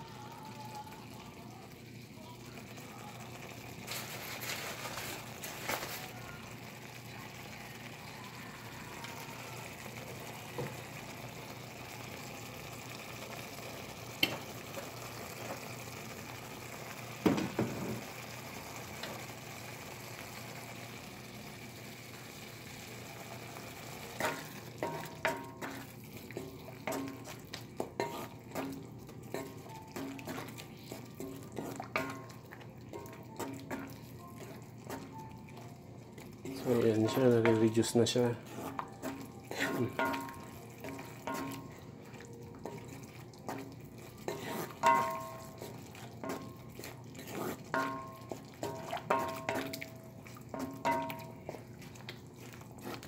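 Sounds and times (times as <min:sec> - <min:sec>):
sauce sizzling and bubbling: 0:00.0 - 0:53.0
spoon scraping and tapping pan: 0:24.2 - 0:53.0.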